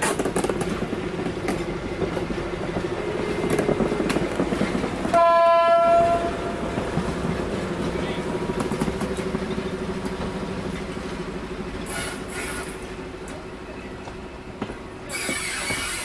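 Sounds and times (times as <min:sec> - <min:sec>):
diesel locomotive engine humming: 0:00.0 - 0:16.0
locomotive horn blast: 0:05.1 - 0:06.6.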